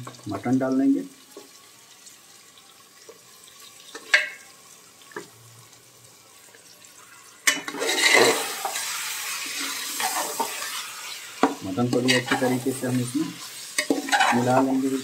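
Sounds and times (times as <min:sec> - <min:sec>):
meat sizzling in hot oil: 0:00.0 - 0:15.0
ladle stirring: 0:07.5 - 0:10.7, 0:11.4 - 0:14.8.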